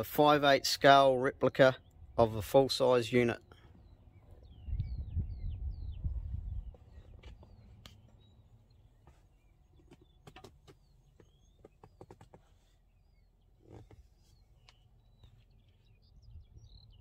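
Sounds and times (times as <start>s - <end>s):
birds chirping: 0.0s - 17.0s
low rumble: 4.0s - 7.7s.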